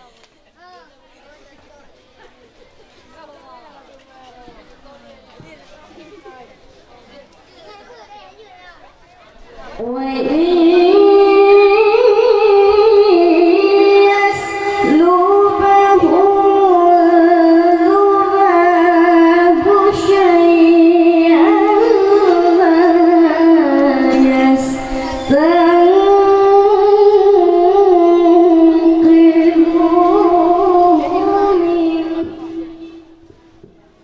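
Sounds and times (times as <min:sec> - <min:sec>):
boy reciting melodically: 0:09.6 - 0:33.2.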